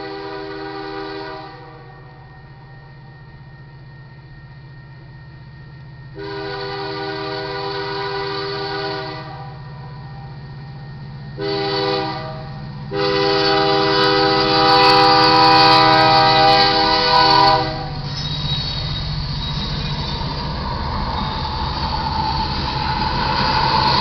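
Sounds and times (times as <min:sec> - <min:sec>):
locomotive air horn blasts: 0:00.0 - 0:02.0, 0:06.1 - 0:09.6, 0:11.4 - 0:18.0
train wheels rumbling past: 0:00.0 - 0:24.0.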